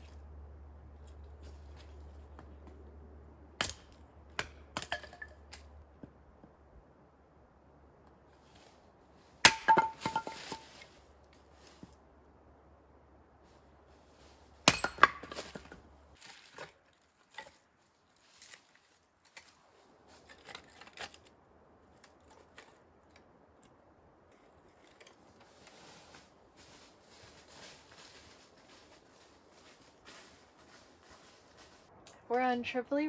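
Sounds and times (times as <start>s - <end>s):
footsteps in dry leaves: 8.3s - 12.0s, 16.2s - 20.3s, 25.4s - 31.9s.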